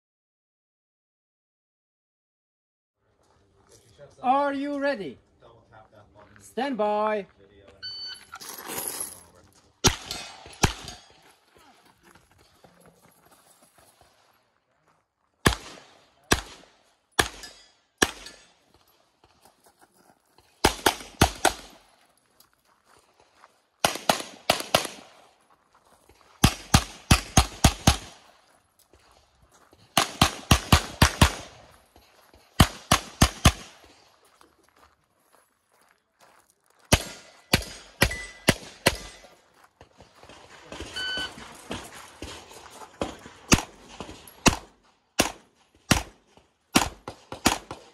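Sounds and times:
pistol shots: 0:09.8 - 0:11.2, 0:15.4 - 0:18.6, 0:20.6 - 0:21.8, 0:23.8 - 0:25.2, 0:26.4 - 0:28.3, 0:29.9 - 0:31.7, 0:32.6 - 0:33.9, 0:36.9 - 0:39.4, 0:43.0 - 0:47.9.

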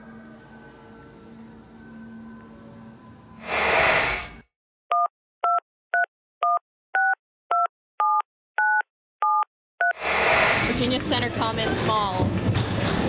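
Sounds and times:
keypad dual-tone beeps: 0:04.9 - 0:10.0.

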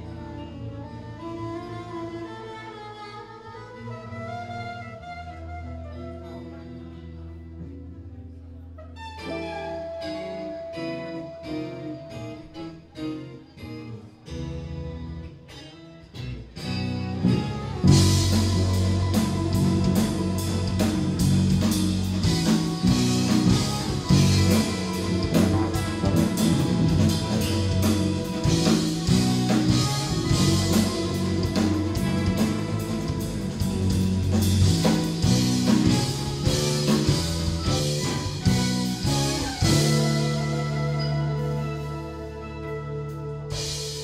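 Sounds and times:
jazz-rock fusion band playing: 0:00.0 - 0:07.9, 0:08.7 - 0:44.0
moving bass line: 0:16.7 - 0:44.0.

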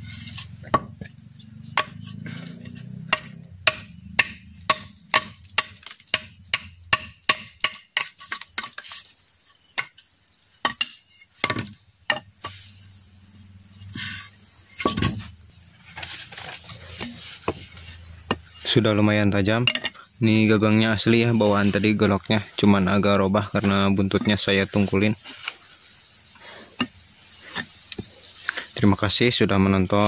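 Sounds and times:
machete chopping bamboo: 0:00.2 - 0:01.1, 0:01.7 - 0:08.9, 0:10.6 - 0:12.2.

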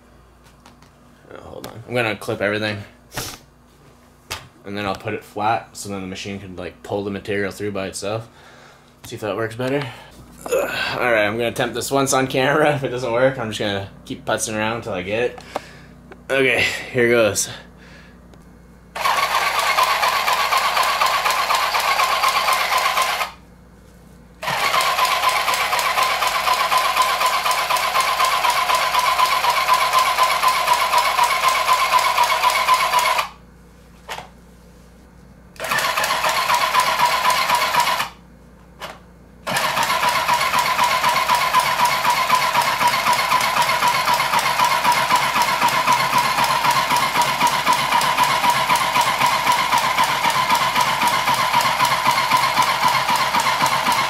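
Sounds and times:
sewing machine whirring: 0:19.0 - 0:23.4, 0:24.4 - 0:33.4, 0:35.6 - 0:38.2, 0:38.8 - 0:54.0.

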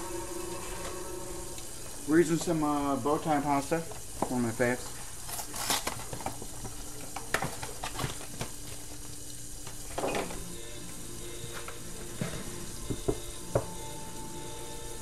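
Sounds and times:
food sizzling in frying pan: 0:00.0 - 0:15.0.

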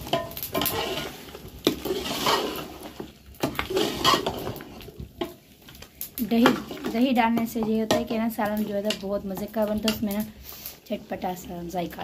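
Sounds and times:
metal spoon scraping a pot: 0:00.0 - 0:05.4
curry sizzling: 0:00.0 - 0:12.0.

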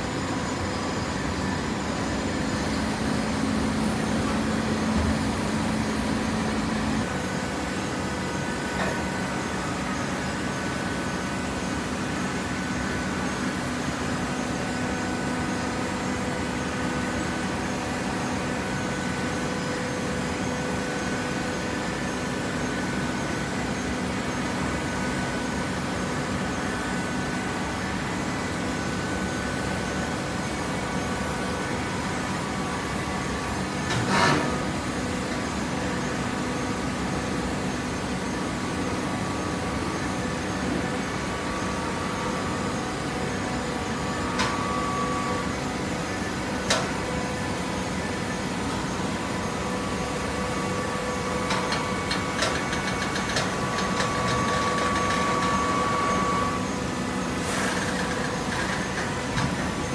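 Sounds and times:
baler machine hum: 0:00.0 - 0:13.8.

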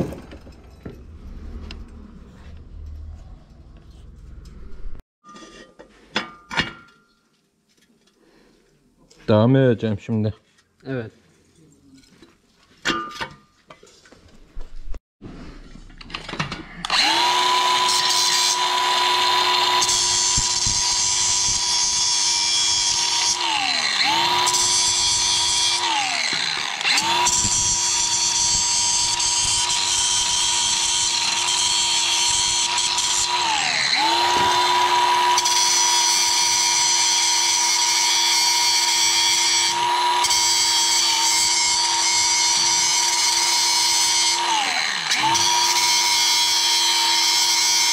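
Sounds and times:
angle grinder grinding metal: 0:16.5 - 0:47.9.

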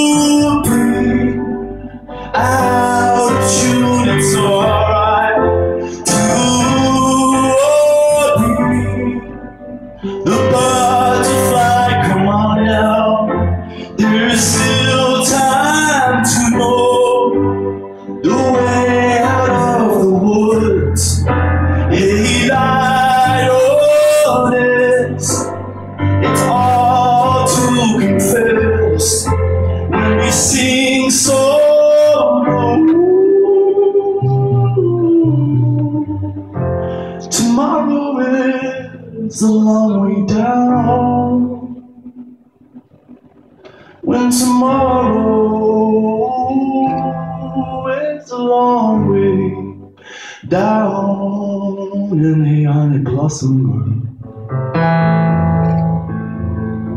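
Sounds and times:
low bass line: 0:00.0 - 0:37.6
man singing: 0:00.0 - 0:41.9, 0:43.8 - 0:54.2
electric keyboard: 0:00.0 - 0:56.9
piano chords: 0:00.0 - 0:56.9.

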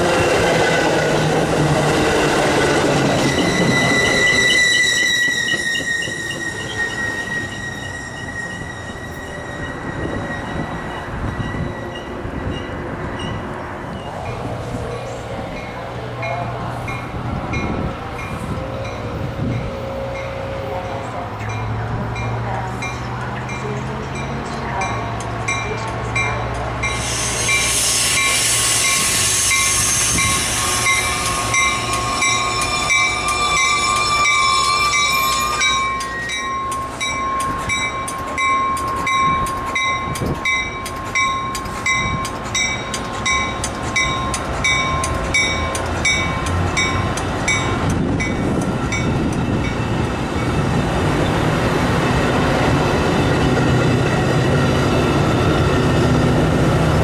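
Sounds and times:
crossing bell ringing: 0:00.0 - 0:51.1
train running past: 0:00.0 - 0:57.0
burst of hiss: 0:26.9 - 0:31.1.

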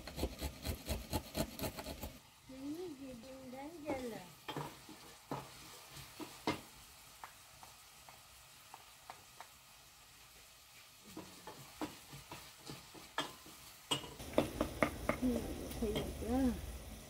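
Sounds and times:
food sizzling in pot: 0:00.0 - 0:17.0
spoon knocking against pot: 0:11.1 - 0:15.3.

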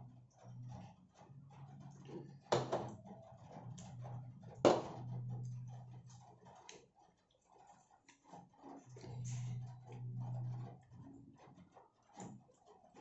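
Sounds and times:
glass knocking on glass table: 0:02.5 - 0:03.0, 0:04.7 - 0:05.0
low hum: 0:08.9 - 0:11.3.

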